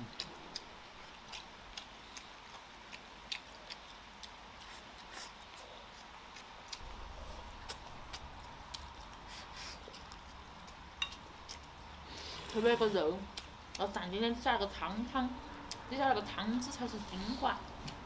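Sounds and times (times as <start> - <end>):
soft chewing: 0.0 - 18.0
low hum: 6.8 - 12.0.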